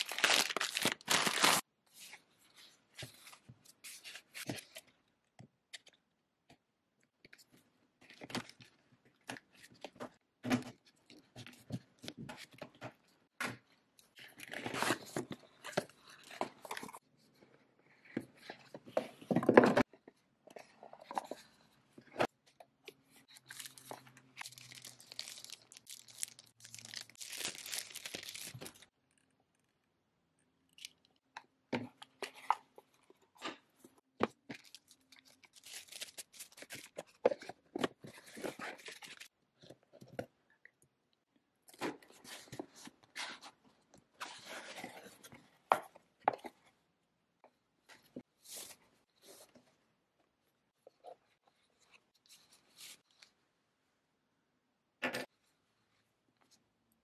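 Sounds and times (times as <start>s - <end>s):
cardboard and wrapping rustling: 0.0s - 1.6s, 23.1s - 28.9s, 34.4s - 39.3s.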